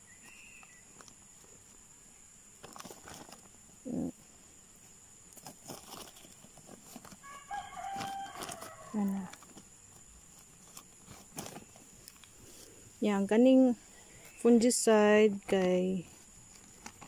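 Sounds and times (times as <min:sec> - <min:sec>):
hands working soil in plastic bags: 0:02.5 - 0:03.9, 0:04.8 - 0:17.0
rooster crowing: 0:07.2 - 0:09.3.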